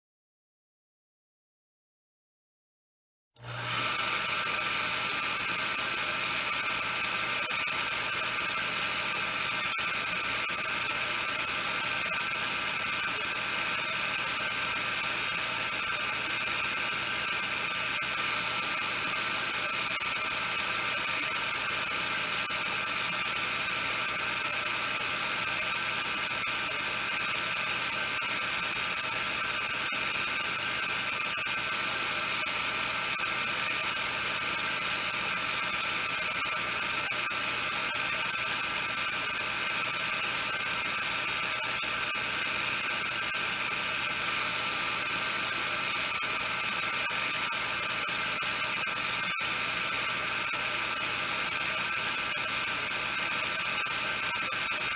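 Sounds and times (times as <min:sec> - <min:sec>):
high hum: 0:06.4 - 0:34.0.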